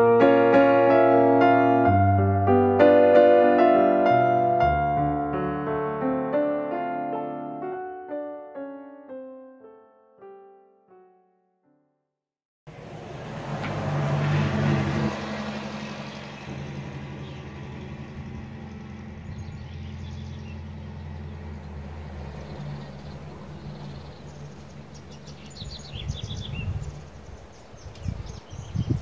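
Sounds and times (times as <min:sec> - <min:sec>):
vehicle passing on road: 0:12.7 - 0:29.0
birds chirping: 0:15.8 - 0:29.0.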